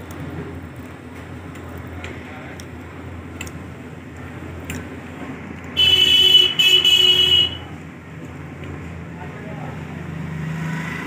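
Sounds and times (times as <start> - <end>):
high-pitched horn blasts: 5.8 - 7.7.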